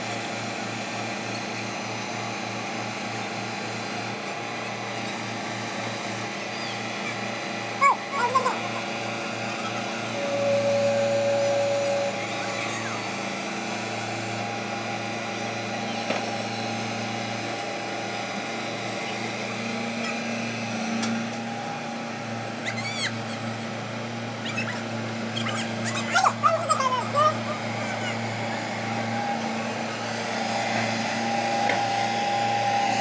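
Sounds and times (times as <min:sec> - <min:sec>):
excavator diesel engine running: 0:00.0 - 0:33.0
loud steady whine: 0:00.0 - 0:33.0
short high cries: 0:06.4 - 0:13.7, 0:19.0 - 0:20.6, 0:22.4 - 0:29.2.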